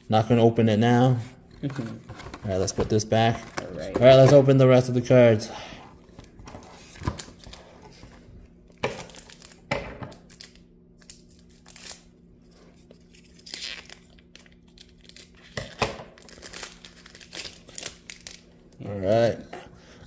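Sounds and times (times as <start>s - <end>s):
foil wrappers tearing and crinkling: 8.9s - 18.5s.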